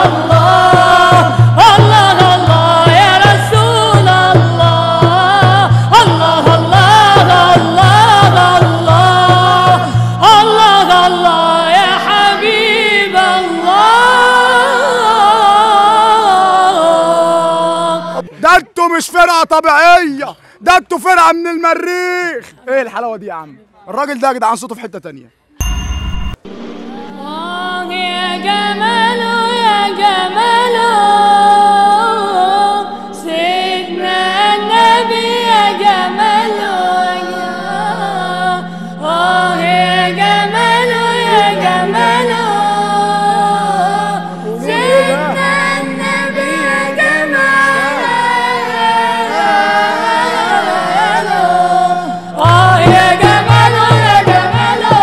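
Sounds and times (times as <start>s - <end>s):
lead voice singing ornamented melody: 0.0s - 18.3s, 26.6s - 55.0s
low held vocal drone: 26.5s - 55.0s.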